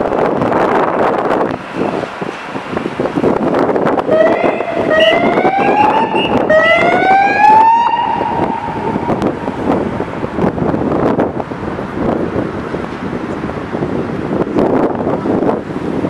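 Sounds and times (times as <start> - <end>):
street noise: 0.0 - 16.0
emergency vehicle siren: 3.9 - 10.2.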